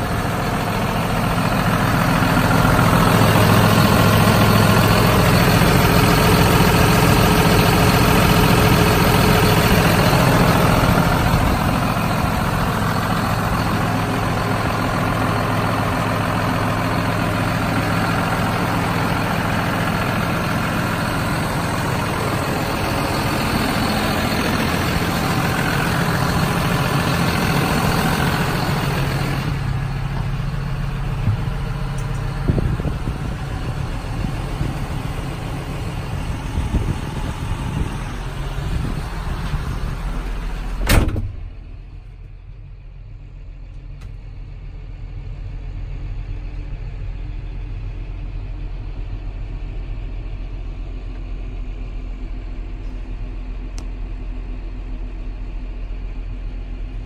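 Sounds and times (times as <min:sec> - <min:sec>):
tractor diesel engine idling: 0:00.0 - 0:57.0
cab door shutting thud: 0:40.8 - 0:41.5.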